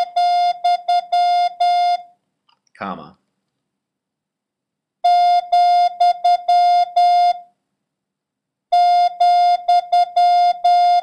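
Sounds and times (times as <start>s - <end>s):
morse code tone: 0.0s - 2.1s, 5.1s - 7.4s, 8.8s - 11.0s.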